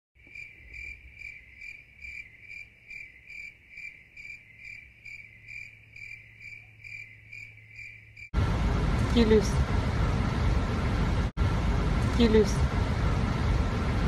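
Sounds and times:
cricket chirping: 0.2 - 8.3.

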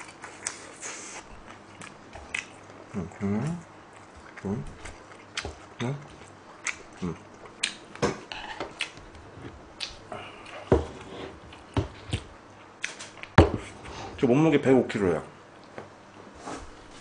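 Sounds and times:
wet chewing: 0.0 - 10.7
lip smacks and clicks: 1.8 - 2.8, 6.6 - 7.0, 7.6 - 7.9, 8.8 - 9.2, 9.8 - 10.0, 12.1 - 13.4.

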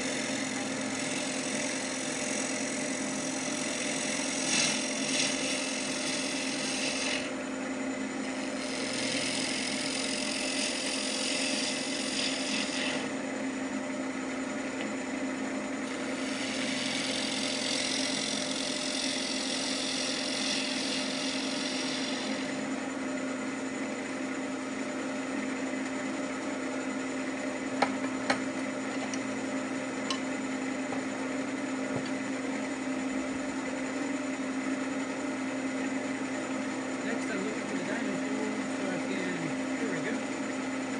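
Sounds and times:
tool cutting wood shavings hiss: 0.0 - 7.4, 8.2 - 13.2, 15.8 - 22.7
wood lathe motor hum: 0.0 - 40.9.

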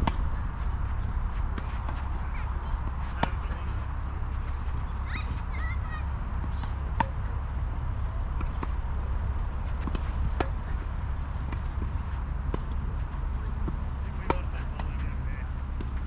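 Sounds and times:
tennis ball bouncing on court: 0.0 - 0.4, 1.4 - 5.6, 6.4 - 7.4, 8.0 - 16.0
tennis ball struck by rackets: 0.0 - 0.4, 2.8 - 3.6, 6.4 - 7.3, 8.3 - 15.0
low rumble: 0.0 - 14.2.

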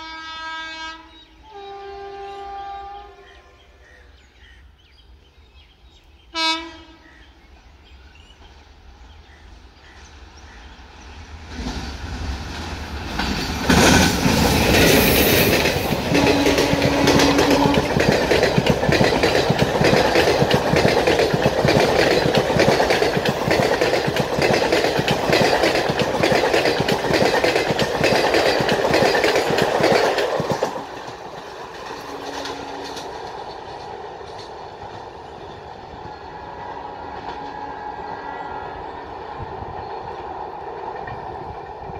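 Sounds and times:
train rumble: 6.4 - 41.9
train wheels clattering over rail joints: 11.6 - 36.2.

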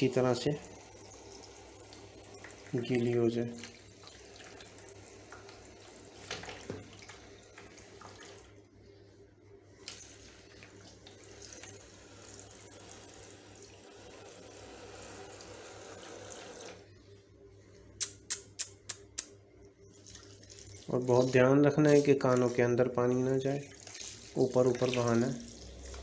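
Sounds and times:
sharp clicks: 18.0 - 19.4
shower spray on fur and water: 20.0 - 26.0.

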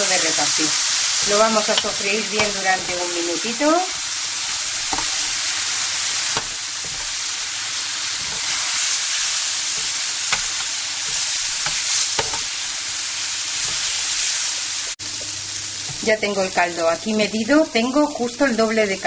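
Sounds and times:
rice sizzling in oil: 0.0 - 19.0
metal spoon clicking on pan: 1.6 - 3.2, 9.7 - 12.5.

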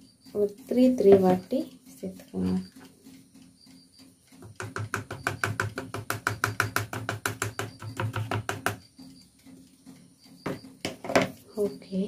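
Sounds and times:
plastic sieve tapping: 0.8 - 1.5, 4.4 - 8.8, 10.4 - 11.4.

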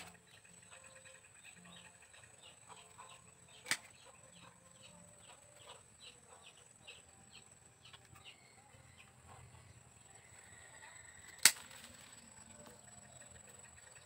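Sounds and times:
pruning shears snip: 3.6 - 4.0, 11.3 - 12.1.

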